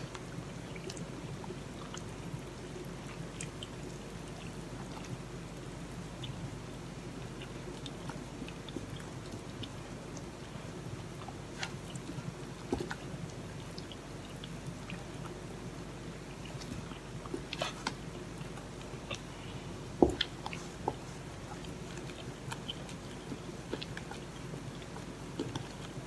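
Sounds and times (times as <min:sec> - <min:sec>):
batter squelching: 0:00.0 - 0:26.0
faint steady hum: 0:00.0 - 0:26.0.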